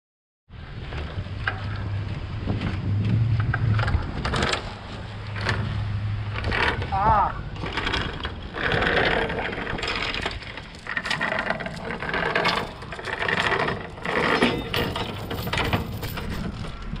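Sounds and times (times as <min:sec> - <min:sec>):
anchor chain rattling on metal: 0:03.7 - 0:17.0.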